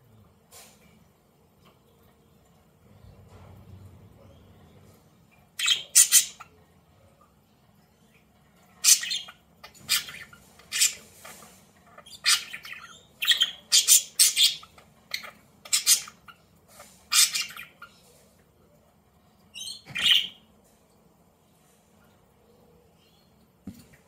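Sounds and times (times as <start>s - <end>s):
budgerigar chirps and squawks: 5.6s - 6.5s, 8.8s - 11.1s, 12.0s - 17.9s, 19.6s - 20.4s.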